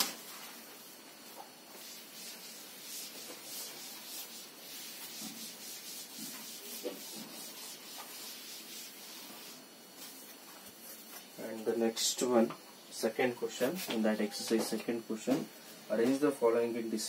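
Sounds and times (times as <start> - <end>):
duster rubbing on chalkboard: 1.7 - 11.2.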